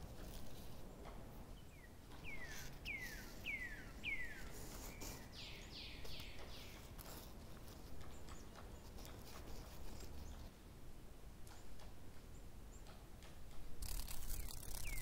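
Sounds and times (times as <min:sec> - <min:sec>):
faint background hiss: 0:00.0 - 0:15.0
bird whistling calls: 0:02.2 - 0:06.7.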